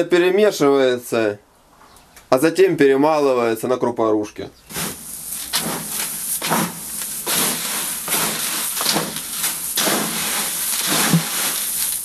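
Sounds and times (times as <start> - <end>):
grain rustling in metal tub: 4.6 - 12.0.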